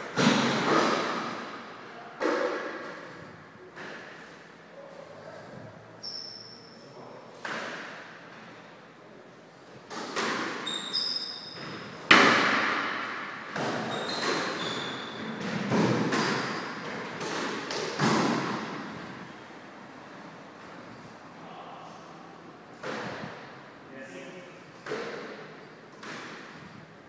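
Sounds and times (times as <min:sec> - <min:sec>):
squash ball hits echoing: 0:00.1 - 0:01.6, 0:09.9 - 0:10.7, 0:11.5 - 0:19.1, 0:22.8 - 0:23.5, 0:24.8 - 0:26.7
sneakers squeaking on wooden floor: 0:05.3 - 0:07.0, 0:10.2 - 0:12.2, 0:13.5 - 0:19.1.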